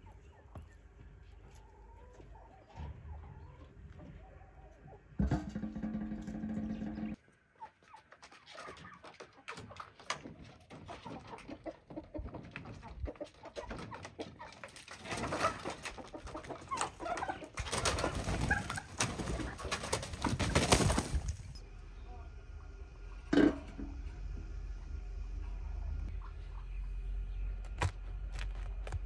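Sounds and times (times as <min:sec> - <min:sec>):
chickens clucking: 0:00.0 - 0:22.1, 0:24.7 - 0:28.5
low steady hum: 0:21.2 - 0:29.0.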